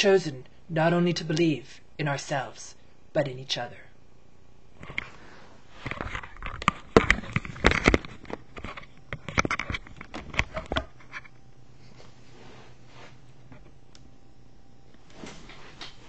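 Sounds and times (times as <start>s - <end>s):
low hum: 3.8s - 16.0s.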